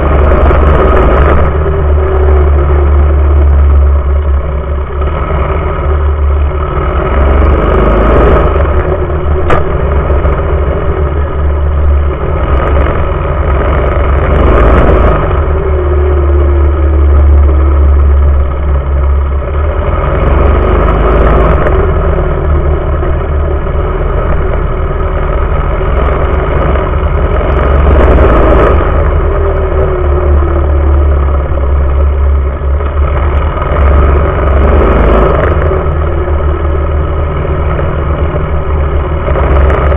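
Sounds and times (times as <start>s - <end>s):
small engine revving: 0.0s - 39.9s
wind rumble on microphone: 0.0s - 39.9s.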